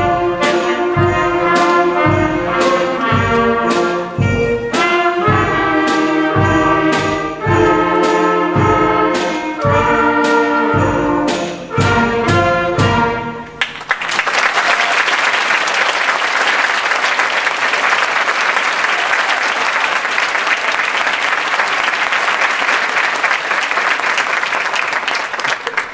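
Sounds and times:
concert band playing chords: 0:00.0 - 0:13.7
audience applauding: 0:13.6 - 0:25.9.

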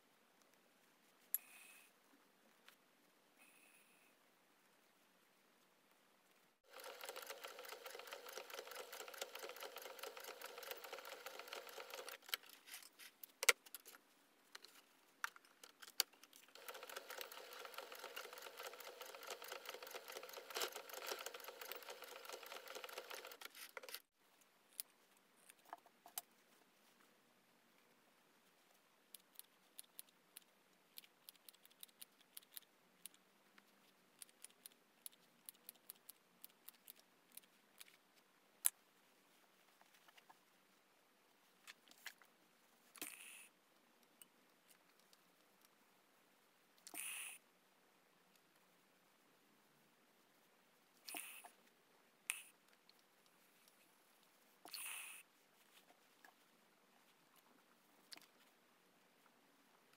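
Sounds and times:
sewing machine stitching: 0:06.6 - 0:12.2, 0:16.5 - 0:23.6.

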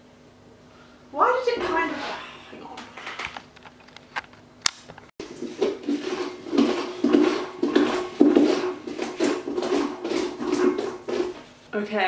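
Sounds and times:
pumpkin being scraped by hand: 0:05.2 - 0:11.6.

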